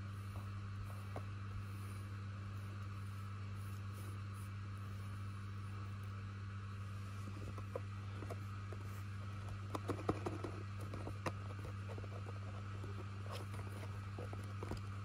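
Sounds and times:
steady low hum: 0.0s - 15.0s
cardboard box taps and scrapes: 7.4s - 14.9s.

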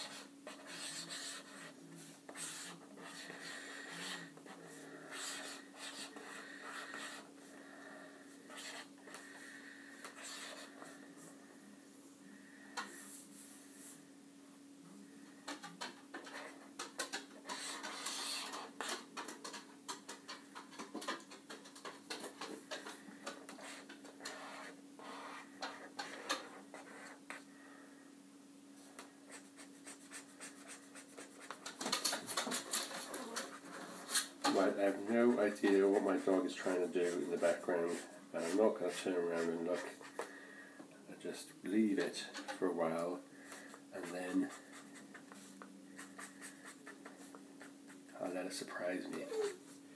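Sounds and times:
marker scratching on paper: 0.0s - 7.3s, 8.5s - 8.9s, 10.0s - 10.9s, 16.2s - 19.0s, 23.4s - 27.4s, 29.3s - 31.8s, 32.4s - 40.2s, 44.0s - 48.2s
steady low hum: 0.0s - 49.9s.

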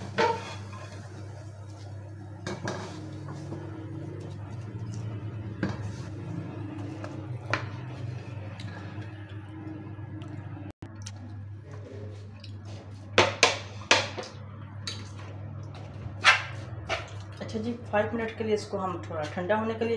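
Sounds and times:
wooden spatula scraping: 0.0s - 8.9s.

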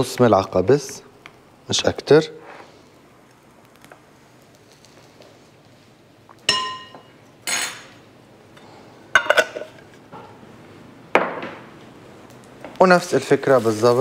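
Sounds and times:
dishes and utensils clinking: 6.5s - 8.0s, 9.2s - 10.3s.

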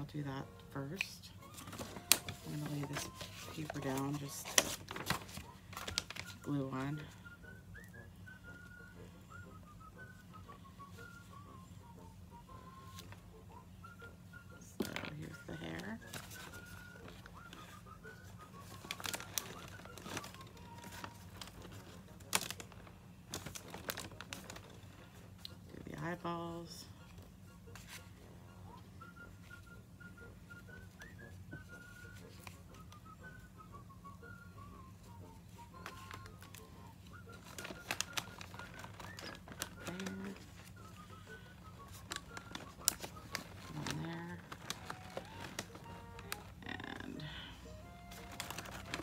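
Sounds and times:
paper bag rustling and crinkling: 1.4s - 7.2s, 14.7s - 25.4s, 35.0s - 46.6s, 47.2s - 49.0s.

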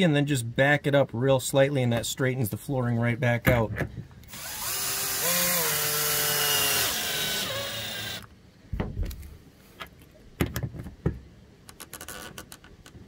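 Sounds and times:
cordless drill whining: 4.3s - 8.3s.

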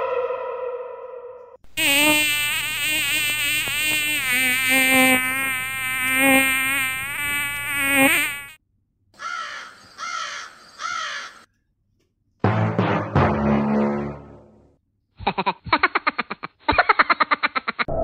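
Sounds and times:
fly buzzing: 1.7s - 8.6s.

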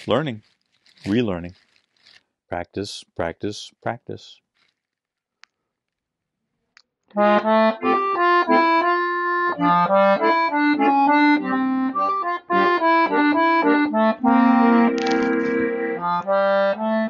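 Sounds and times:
piano accordion playing: 7.2s - 17.0s.

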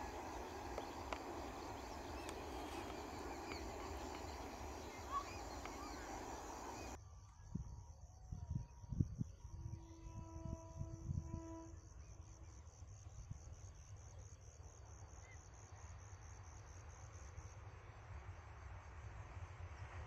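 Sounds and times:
approaching train rushing: 0.0s - 7.0s
crickets chirping: 0.0s - 7.0s
distant train horn: 0.0s - 7.0s, 9.8s - 11.8s.

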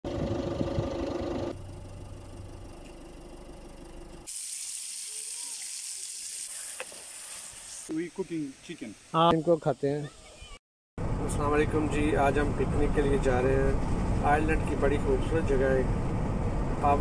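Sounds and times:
steady hum: 0.1s - 4.3s
food sizzling in frying pan: 4.3s - 8.5s.

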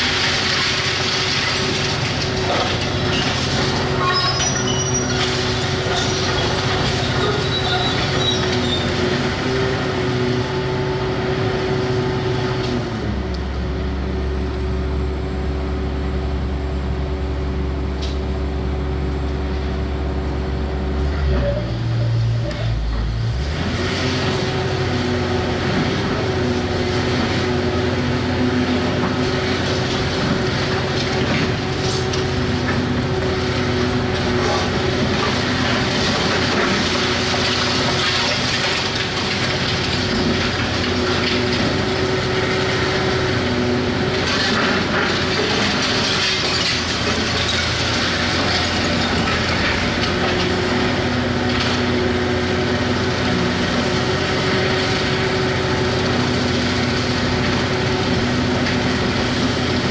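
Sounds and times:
debris cracking and crunching: 0.0s - 9.1s, 28.8s - 59.9s
excavator diesel engine running: 0.0s - 59.9s.

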